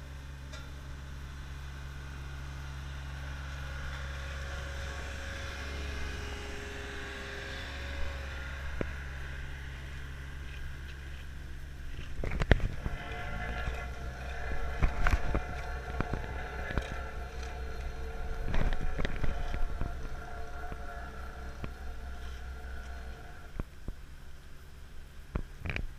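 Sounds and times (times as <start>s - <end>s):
paving machinery engine hum: 0.0s - 25.9s.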